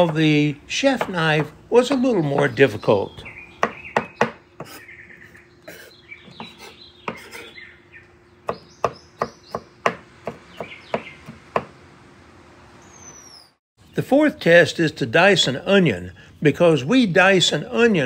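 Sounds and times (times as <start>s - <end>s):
knife chopping on wooden board: 0.0s - 2.7s, 3.6s - 4.9s, 6.2s - 7.6s, 8.4s - 11.8s
birds chirping: 0.0s - 18.0s.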